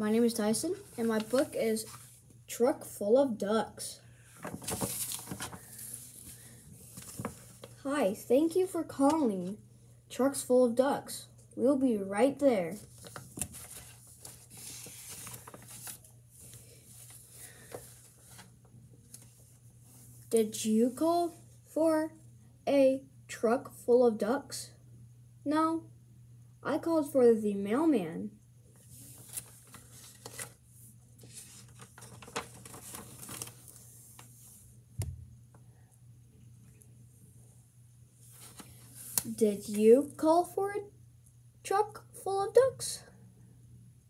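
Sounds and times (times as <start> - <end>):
paper pages rustling: 0.7 - 2.2, 4.3 - 7.8, 12.8 - 20.2, 28.8 - 30.6, 31.2 - 34.6, 38.2 - 40.2.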